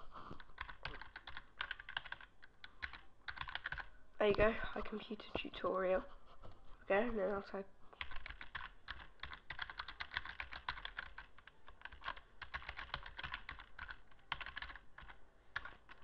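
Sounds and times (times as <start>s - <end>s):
keyboard typing clicks: 0.5s - 4.5s, 8.0s - 16.0s.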